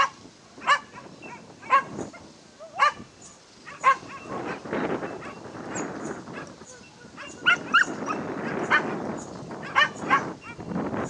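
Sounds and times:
dog barking: 0.0s - 3.0s, 3.7s - 5.5s, 6.3s - 9.0s, 9.6s - 10.7s.

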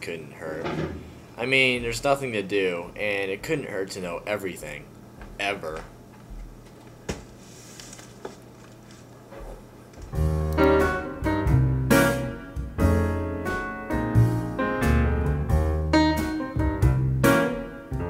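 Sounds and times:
piano music: 10.1s - 18.0s.

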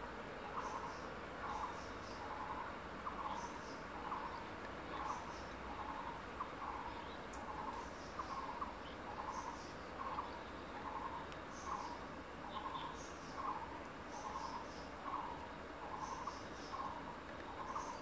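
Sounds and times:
high insect hiss: 0.0s - 18.0s.

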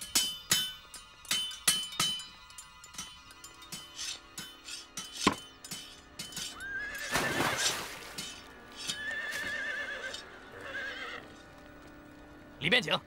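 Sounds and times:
background music: 0.0s - 13.0s
horse neighing: 6.6s - 7.9s, 8.8s - 11.3s.

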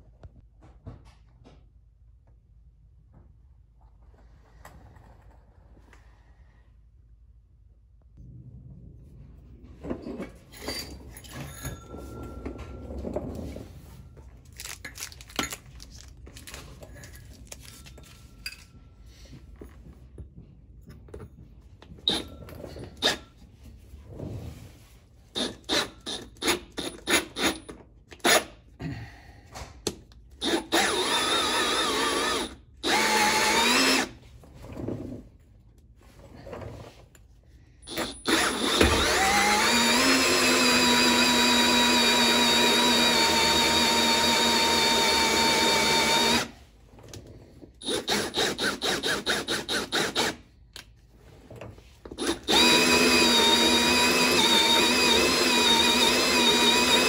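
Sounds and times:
power drill with hole saw: 22.1s - 22.3s, 25.4s - 27.6s, 30.4s - 34.2s, 37.9s - 46.6s, 47.8s - 50.5s, 52.2s - 57.0s.

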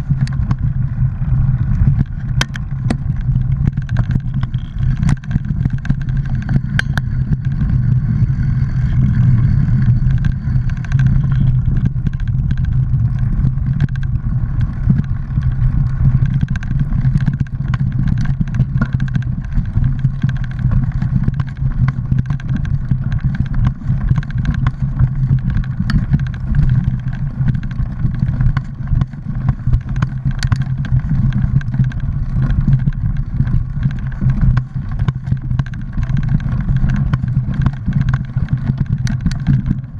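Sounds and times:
bike clicks and rattles: 0.0s - 39.9s
wind and rolling rumble: 0.0s - 39.9s.

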